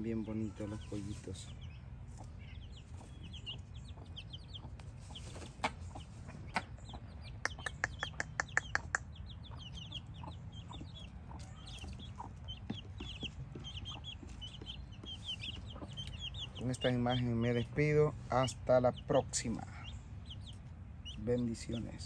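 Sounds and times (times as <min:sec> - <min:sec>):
chicks peeping: 0:00.0 - 0:22.0
sharp clicks: 0:07.4 - 0:09.1.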